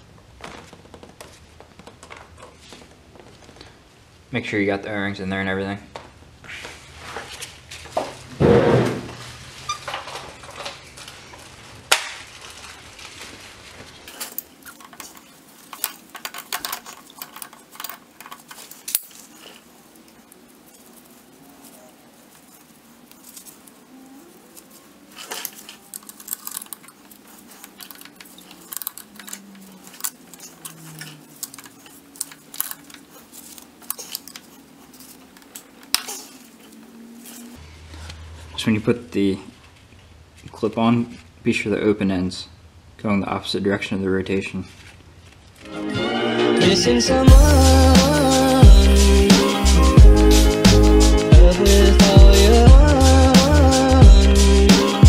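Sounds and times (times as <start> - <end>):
thump: 8.4 - 9.2
metal chain clinking and rattling: 14.1 - 19.7, 25.1 - 37.5.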